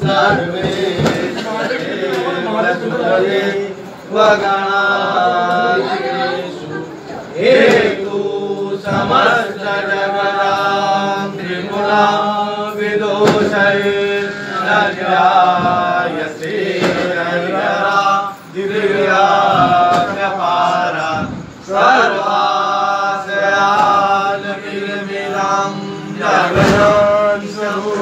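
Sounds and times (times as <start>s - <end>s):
group chanting a prayer: 0.0s - 28.0s.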